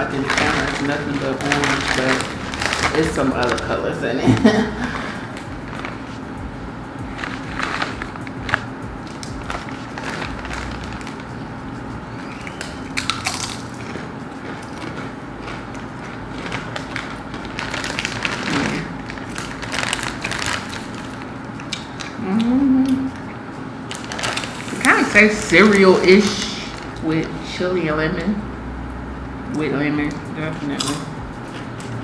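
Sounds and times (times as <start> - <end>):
chips crunching being chewed: 0.0 - 23.2, 30.6 - 32.0
short voice hum: 22.2 - 23.2.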